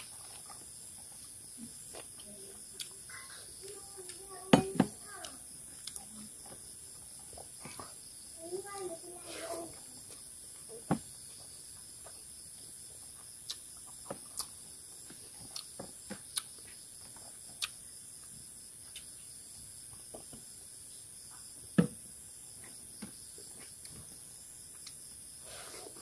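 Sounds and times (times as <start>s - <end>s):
man chewing food: 0.0s - 4.2s, 5.7s - 8.1s, 10.1s - 19.2s
steady high-pitched hiss: 0.0s - 26.0s.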